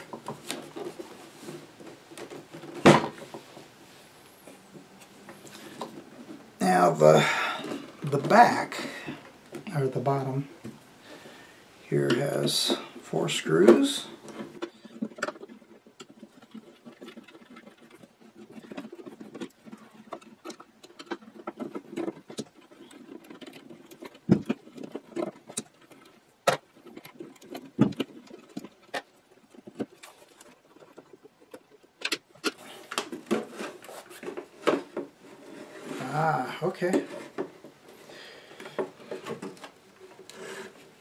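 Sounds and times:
sharp clicks and knocks: 13.7 - 36.0.

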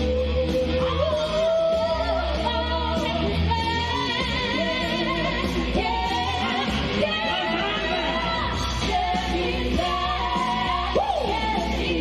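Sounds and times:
band track with steady bass: 0.0 - 12.0.

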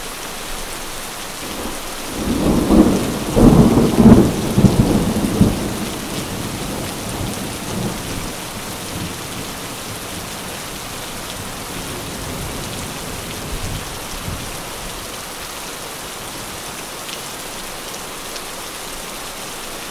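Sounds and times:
heavy rain: 0.0 - 19.9
thunder rumbling: 1.4 - 15.1.

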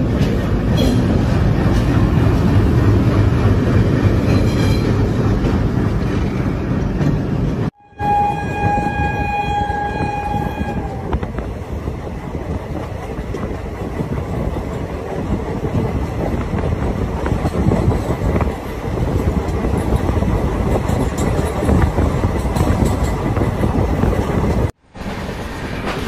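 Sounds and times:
train wheels rumbling on rails: 0.0 - 26.0
train horn: 7.8 - 11.2.

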